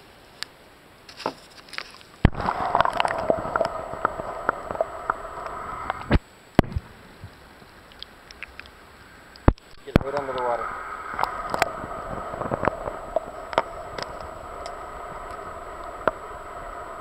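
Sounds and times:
muffled underwater hum: 0:02.2 - 0:17.0.

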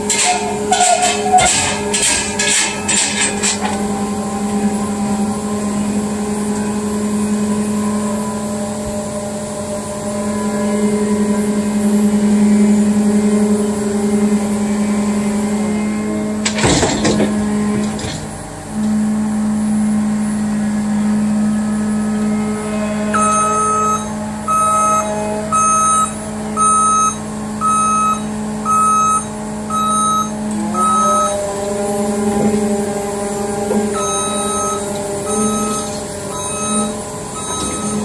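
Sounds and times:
metal clanks: 0:00.0 - 0:03.9
diesel engine running: 0:00.0 - 0:38.0.

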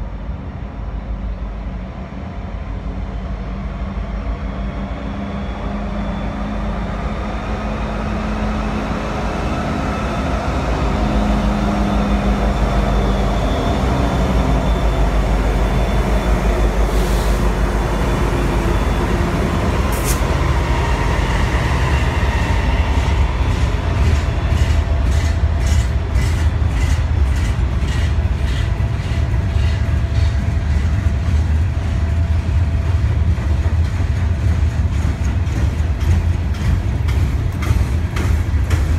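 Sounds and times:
diesel locomotives rumbling: 0:00.0 - 0:38.9
wheels clacking over rail joints: 0:32.8 - 0:38.9.

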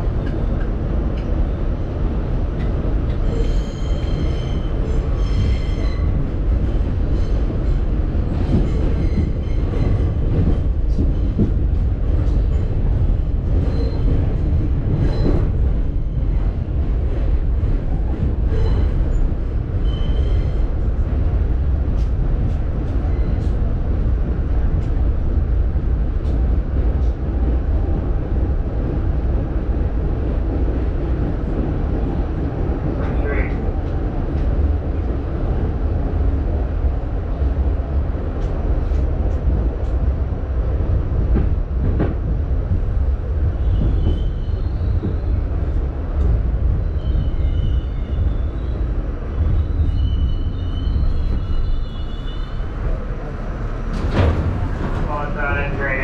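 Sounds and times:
subway train rumble: 0:00.0 - 0:56.0
wheels squealing on rails: 0:03.2 - 0:06.2, 0:08.4 - 0:10.2, 0:13.6 - 0:14.2, 0:18.5 - 0:20.7, 0:43.6 - 0:45.4, 0:46.8 - 0:53.0.

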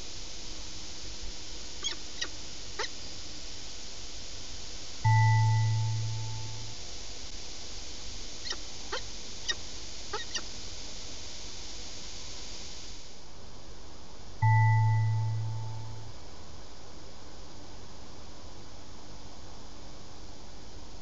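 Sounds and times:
chime-like tone: 0:05.1 - 0:06.7, 0:14.4 - 0:16.1
falcons calling: 0:10.2 - 0:10.4.

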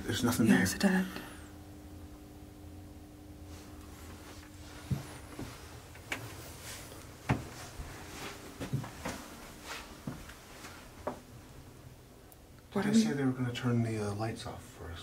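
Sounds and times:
clothing rustle: 0:03.4 - 0:11.1
footsteps on stairs: 0:04.8 - 0:05.6, 0:07.2 - 0:10.4.

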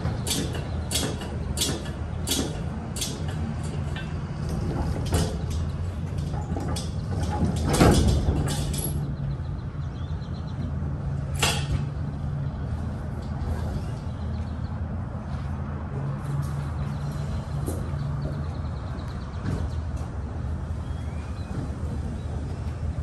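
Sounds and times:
metal knocks and rattles: 0:00.0 - 0:09.6.

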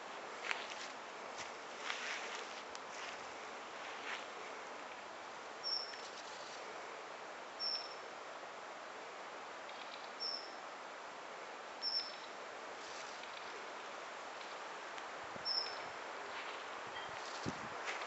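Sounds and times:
steady background hiss: 0:00.0 - 0:18.0
small bird chirping: 0:05.6 - 0:06.0, 0:07.6 - 0:08.0, 0:09.7 - 0:10.6, 0:11.8 - 0:12.3, 0:15.4 - 0:15.9.

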